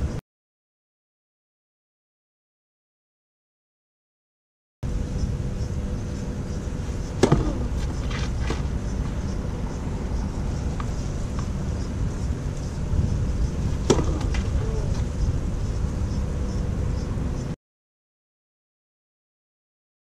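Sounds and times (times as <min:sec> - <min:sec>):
tennis racket hitting ball: 0:07.2 - 0:08.8, 0:13.8 - 0:14.6.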